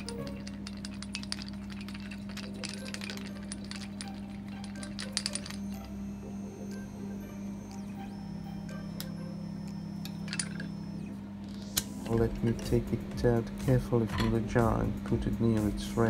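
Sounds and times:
plastic part rattling in a jar: 0:00.0 - 0:05.9
low hum: 0:00.0 - 0:16.0.

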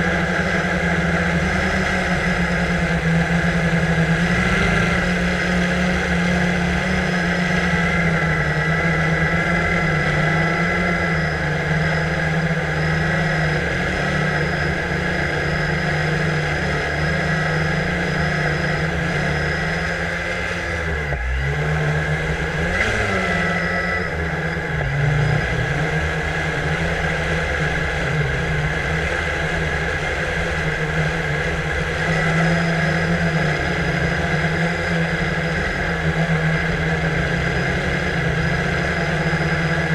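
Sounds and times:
drone propellers whirring: 0:00.0 - 0:39.9.

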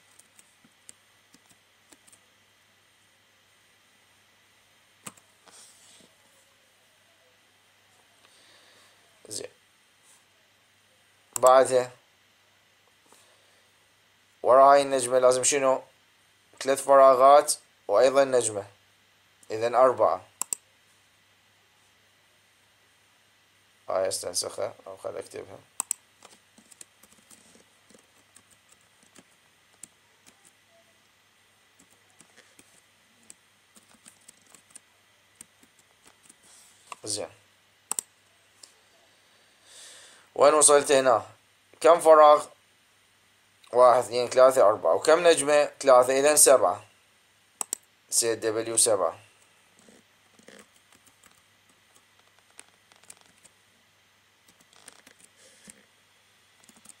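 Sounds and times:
computer keyboard keystrokes: 0:47.6 - 0:47.8, 0:56.6 - 0:57.0.

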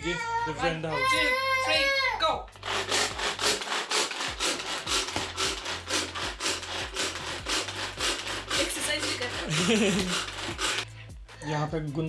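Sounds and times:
rhythmic rasping scrapes: 0:02.5 - 0:11.4.

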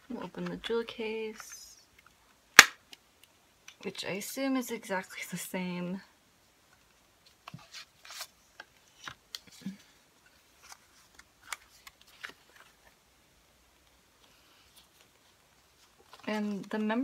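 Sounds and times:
paper booklet rustling: 0:07.3 - 0:13.0, 0:14.2 - 0:17.0.

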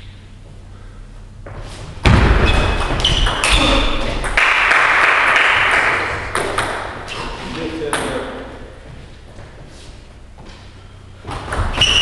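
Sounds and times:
loud thump: 0:02.0 - 0:03.1
ball hitting bat and table: 0:02.0 - 0:07.1
shoe squeaks: 0:02.4 - 0:04.2, 0:07.0 - 0:07.7, 0:11.6 - 0:12.0
clapping: 0:04.4 - 0:06.1.

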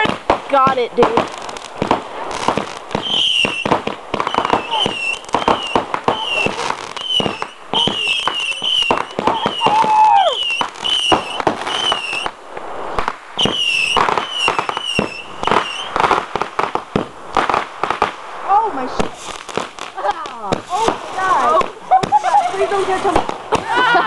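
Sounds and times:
fireworks bangs and pops: 0:00.0 - 0:24.0
warbling firework whistles: 0:01.5 - 0:12.4, 0:13.0 - 0:16.2
long falling whistle: 0:07.0 - 0:12.3.

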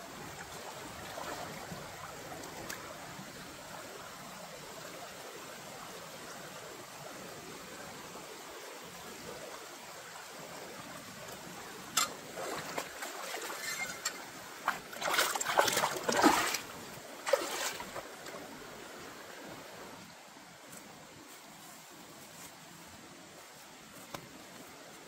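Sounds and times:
stream flowing over rocks: 0:00.0 - 0:25.0
feet splashing through water: 0:12.2 - 0:18.5.

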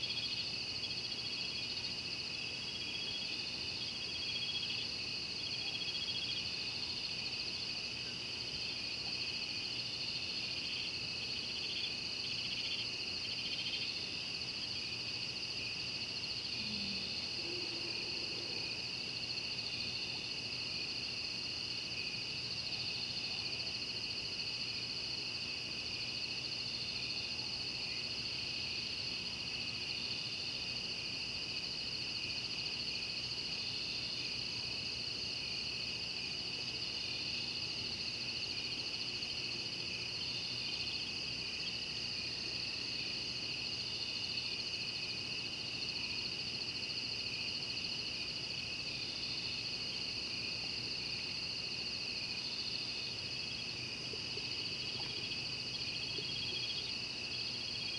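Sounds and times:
insects trilling: 0:36.9 - 0:57.9.

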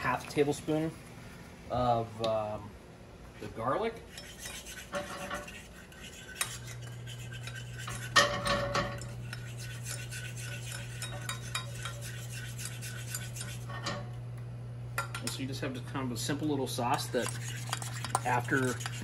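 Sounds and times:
low steady hum: 0:00.0 - 0:19.0
utensil scraping in pot: 0:04.0 - 0:14.1, 0:16.6 - 0:19.0.

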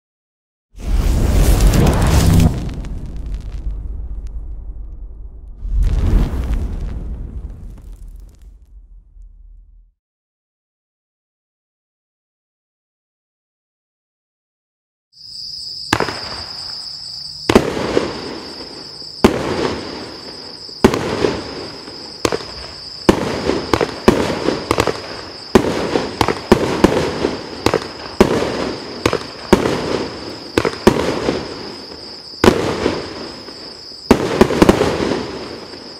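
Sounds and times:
firework shots: 0:00.8 - 0:09.8, 0:15.9 - 0:16.8, 0:17.5 - 0:35.8
crackling firework stars: 0:00.8 - 0:09.9, 0:15.9 - 0:35.9.

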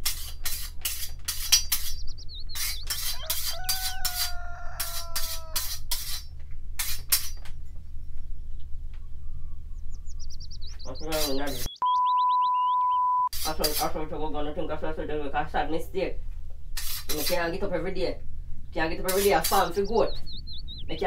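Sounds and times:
file rasping on blade: 0:00.0 - 0:07.4, 0:16.8 - 0:17.4
bird chirping: 0:00.4 - 0:04.7, 0:07.7 - 0:13.3, 0:18.7 - 0:21.0.

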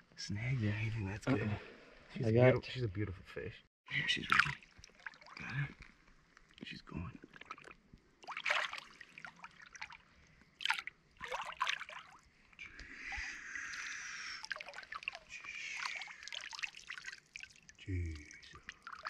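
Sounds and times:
river water splashing: 0:04.1 - 0:05.5, 0:08.2 - 0:12.3, 0:13.0 - 0:19.0.

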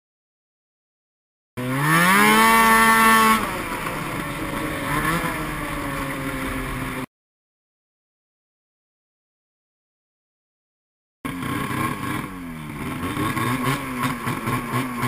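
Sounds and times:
snowmobile engine revving: 0:01.6 - 0:07.1, 0:11.3 - 0:15.0.

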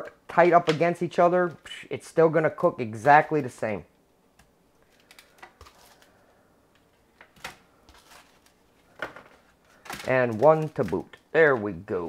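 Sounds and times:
crinkles of aluminium foil pan: 0:04.8 - 0:06.2, 0:07.8 - 0:11.2.

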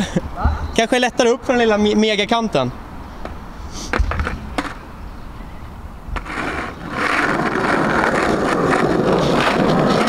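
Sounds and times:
skateboard wheels rolling: 0:03.9 - 0:04.9, 0:06.1 - 0:10.0.

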